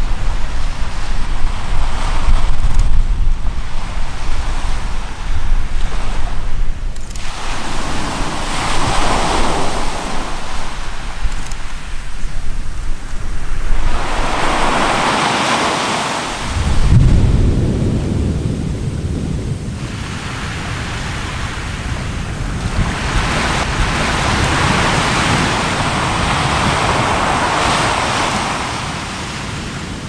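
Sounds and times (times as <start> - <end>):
volcanic noisy rush: 0.0 - 30.0
volcano deep boom: 16.4 - 21.0.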